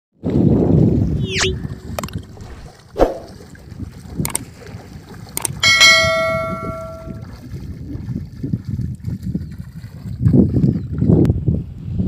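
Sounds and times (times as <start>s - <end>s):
bell chime: 5.6s - 7.2s.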